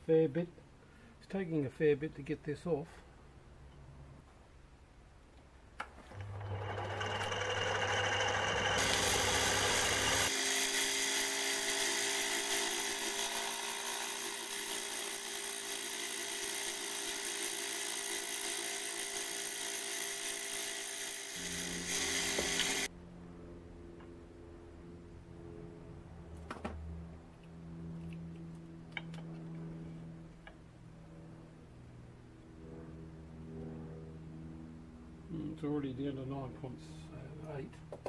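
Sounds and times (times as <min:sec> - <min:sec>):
cordless drill whining: 0:06.1 - 0:22.9
lathe cutting metal: 0:06.1 - 0:22.9
low hum: 0:21.4 - 0:37.9.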